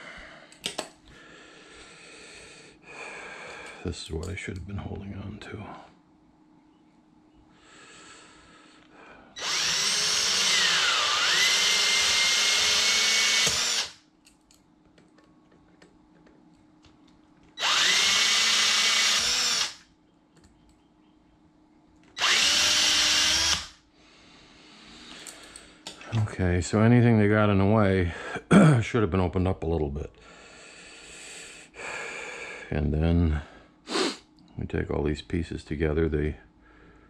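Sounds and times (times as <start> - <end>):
cordless drill whining: 9.4 - 14.0, 17.6 - 19.8, 22.2 - 23.8.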